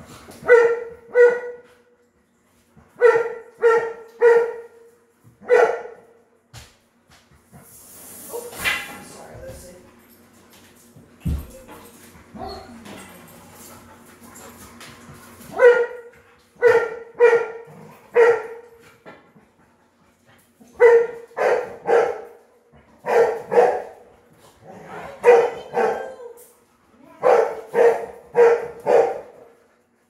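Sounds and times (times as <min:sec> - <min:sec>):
dog barking: 0:00.4 - 0:01.6, 0:03.0 - 0:04.8, 0:05.4 - 0:06.0, 0:15.5 - 0:18.6, 0:20.8 - 0:22.3, 0:23.0 - 0:23.9, 0:25.2 - 0:26.2, 0:27.2 - 0:29.3.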